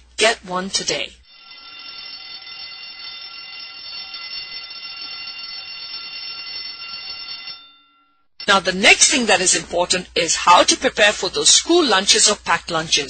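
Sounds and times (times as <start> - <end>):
alarm clock bell ringing: 1.2 - 9.2.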